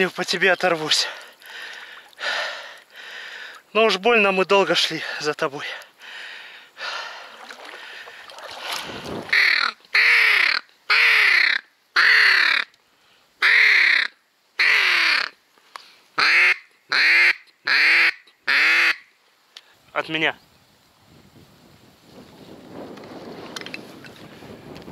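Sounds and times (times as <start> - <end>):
duck quacking: 9.3 - 12.7, 16.2 - 19.0.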